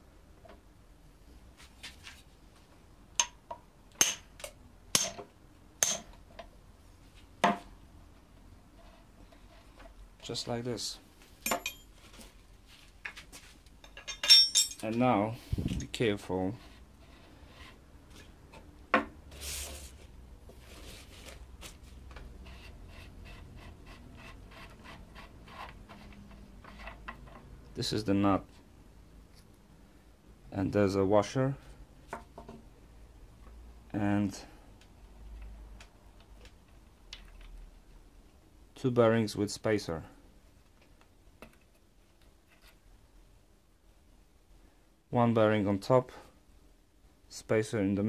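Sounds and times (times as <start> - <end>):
hammer striking metal spanner: 5.8 - 6.1, 11.4 - 11.8, 14.0 - 14.8.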